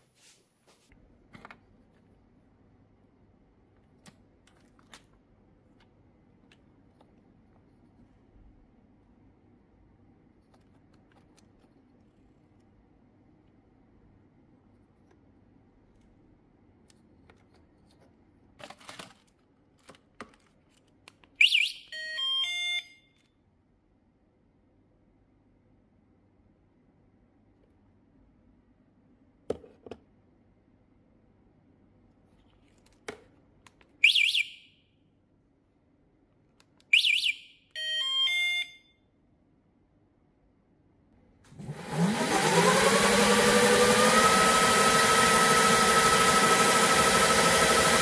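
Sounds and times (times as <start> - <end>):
alarm siren chirp: 21.4 - 23.1, 34.0 - 34.8, 36.9 - 39.0
alarm double chirp: 34.0 - 34.8.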